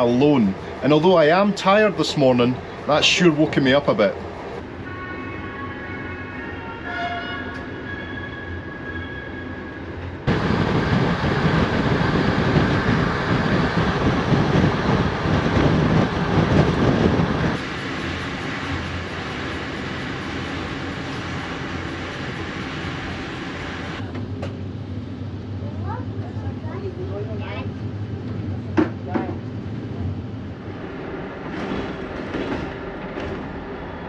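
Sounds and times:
train wheels rumbling on rails: 0:00.0 - 0:04.7, 0:09.9 - 0:24.8, 0:25.8 - 0:34.0.

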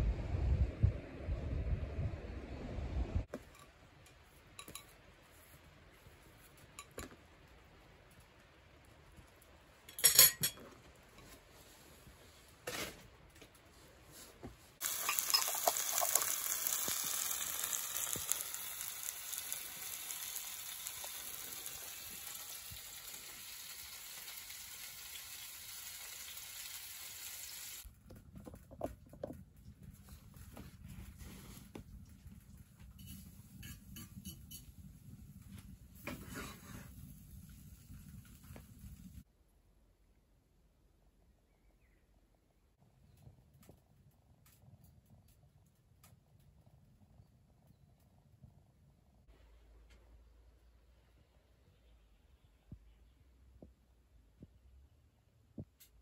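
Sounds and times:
bananas sizzling in skillet: 0:14.8 - 0:27.9.

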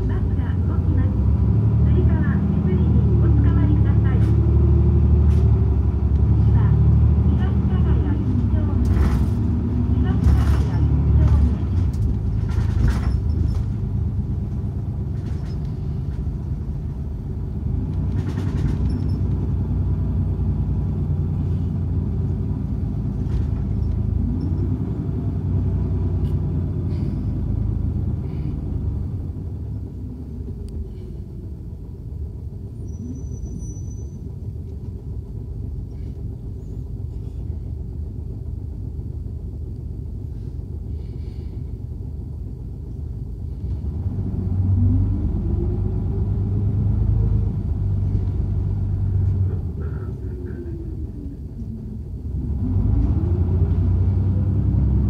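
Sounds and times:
bus engine and road noise: 0:00.0 - 0:55.0.

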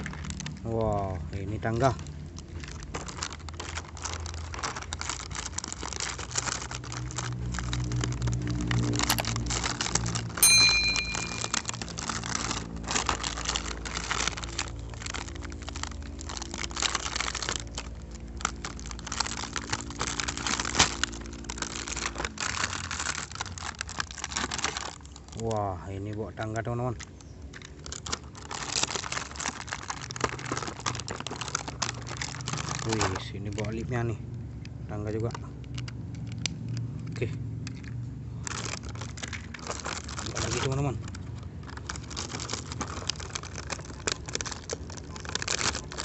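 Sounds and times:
plastic packaging crinkling: 0:00.0 - 0:33.9, 0:34.5 - 0:46.0
ringing ping: 0:10.4 - 0:11.6.

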